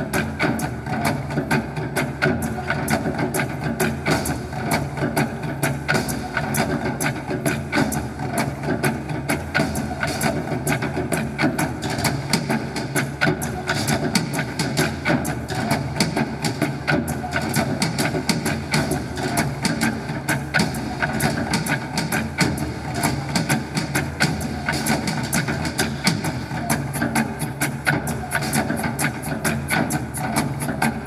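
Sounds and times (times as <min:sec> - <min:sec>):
music with fast percussive beat: 0:00.0 - 0:31.0.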